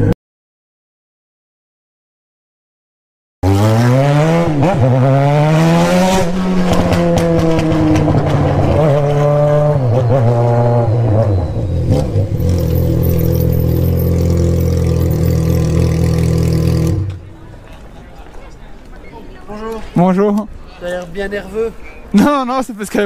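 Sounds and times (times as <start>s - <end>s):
motorcycle engine accelerating: 3.4s - 17.4s.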